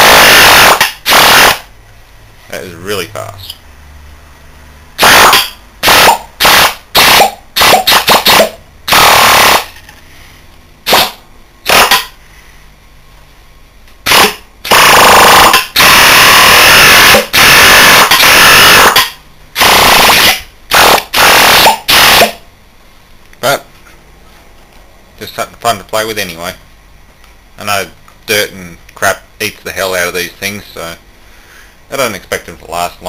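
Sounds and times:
compressor spinning with hissing air: 5.0s - 12.3s.

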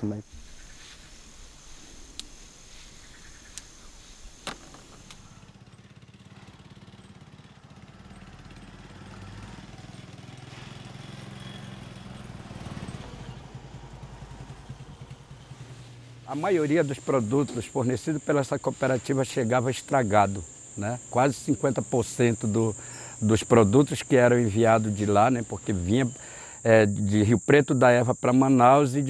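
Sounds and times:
small motorcycle engine running: 2.6s - 18.2s
sharp clicks: 3.4s - 3.8s
steady high whine: 13.2s - 27.4s.

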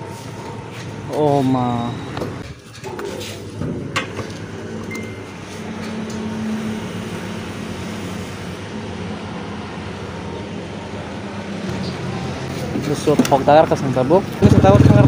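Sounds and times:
short beep: 4.9s - 5.3s
fuel pump motor humming: 14.2s - 15.0s.

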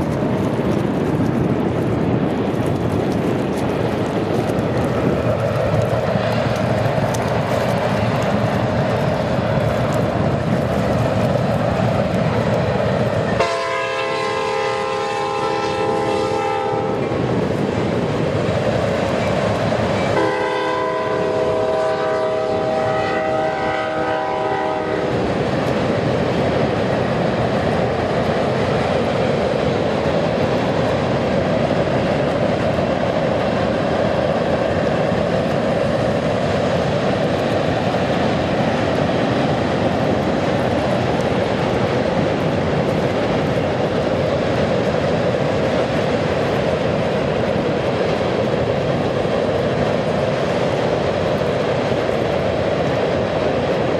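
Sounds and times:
train rumbling over steel bridge: 0.0s - 53.9s
locomotive air horn: 13.4s - 17.0s, 20.2s - 25.1s.

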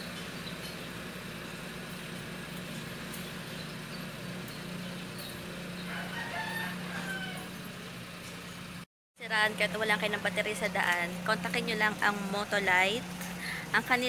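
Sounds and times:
car engine idling: 0.0s - 14.0s
rooster crowing: 5.8s - 7.8s.

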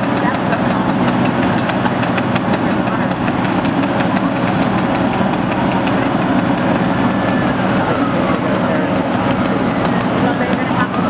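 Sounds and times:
diesel engine running: 0.0s - 11.0s
fast ticking clatter: 0.0s - 11.0s.

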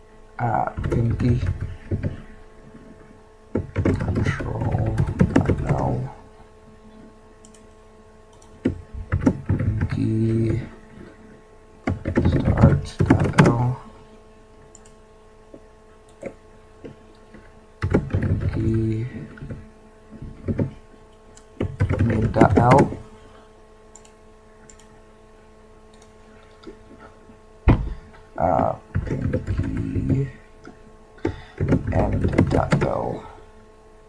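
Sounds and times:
faint steady hum: 0.0s - 34.0s
keyboard typing: 0.6s - 2.2s, 3.5s - 6.1s, 7.4s - 7.7s, 8.3s - 10.7s, 11.8s - 13.8s, 14.7s - 15.0s, 16.1s - 19.6s, 20.3s - 23.0s, 23.9s - 24.9s, 28.9s - 30.3s, 31.2s - 33.2s.

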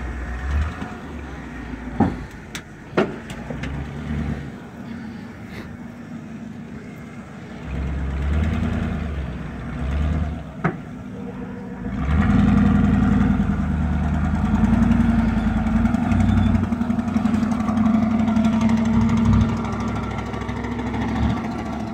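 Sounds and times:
truck engine rumbling: 0.0s - 21.9s.

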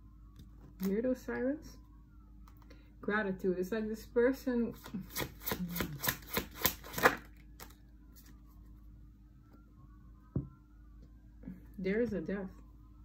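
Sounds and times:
cards being shuffled: 4.8s - 8.5s.

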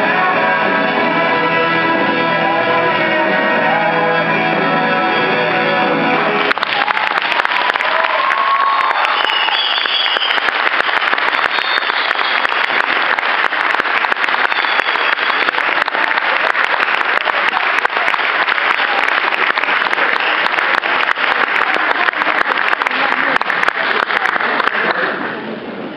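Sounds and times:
audience applauding: 6.4s - 25.3s.

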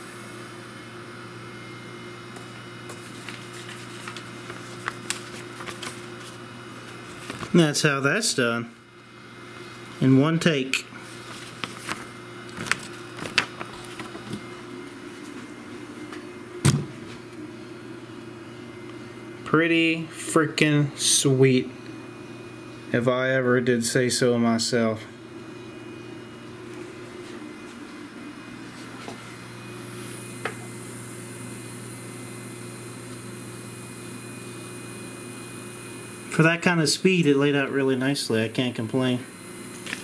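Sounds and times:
high whine: 0.0s - 40.0s
steady low hum: 0.0s - 40.0s
paper rustling: 2.9s - 7.6s, 11.0s - 14.5s.

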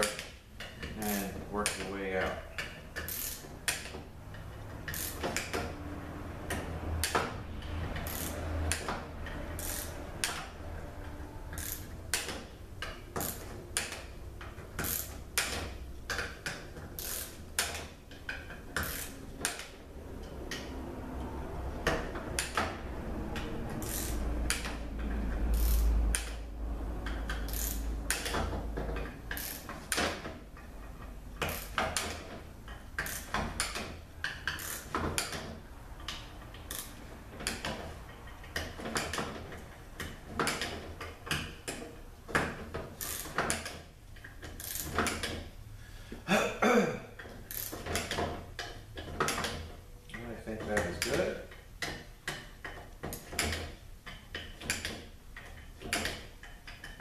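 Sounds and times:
hand ratchet clicking: 0.0s - 5.8s, 7.9s - 10.5s, 11.5s - 20.7s, 23.4s - 26.4s, 27.0s - 45.5s, 47.2s - 49.7s.

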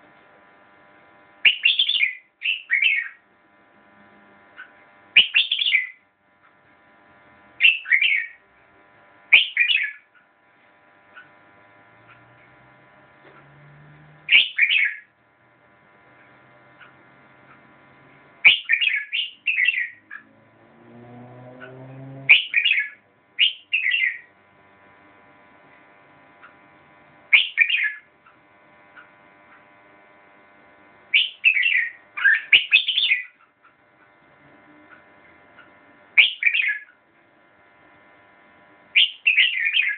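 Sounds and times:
bird singing whistled phrases: 1.5s - 3.2s, 5.2s - 6.0s, 7.6s - 8.4s, 9.3s - 10.0s, 14.3s - 15.1s, 18.4s - 20.0s, 22.3s - 24.3s, 27.3s - 28.0s, 31.2s - 33.3s, 36.2s - 36.9s, 39.0s - 39.9s.

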